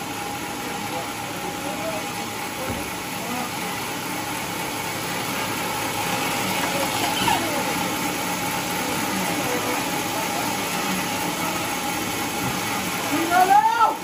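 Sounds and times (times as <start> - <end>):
sawmill machinery droning: 0.0 - 14.0.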